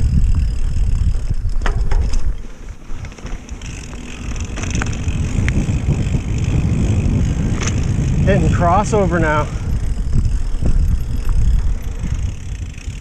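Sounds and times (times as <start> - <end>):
bike rattling: 0.0 - 13.0
tyre noise on dirt: 0.0 - 13.0
wind rumbling on microphone: 0.0 - 13.0.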